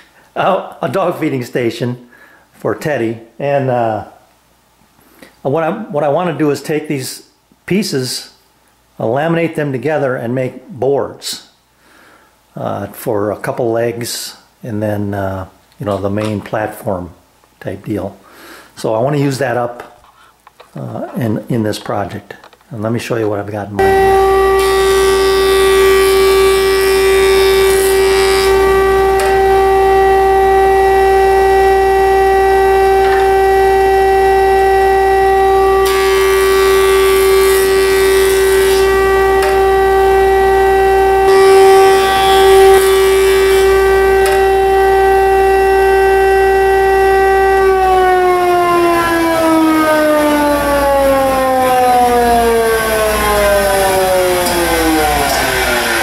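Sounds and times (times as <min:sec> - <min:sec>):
boards being cut: 0:23.8 - 0:56.0
jointer whining: 0:23.8 - 0:56.0.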